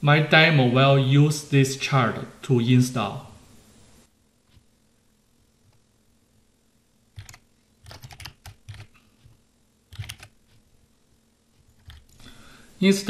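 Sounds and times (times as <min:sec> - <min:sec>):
keyboard keys clicking: 0:07.2 - 0:08.9, 0:09.9 - 0:10.3, 0:11.8 - 0:12.2.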